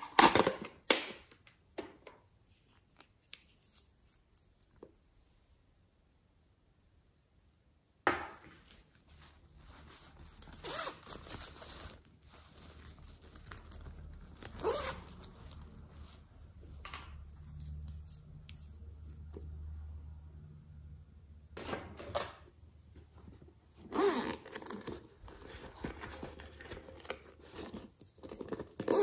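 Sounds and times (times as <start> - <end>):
plastic containers scraping and rustling: 21.6 - 29.0.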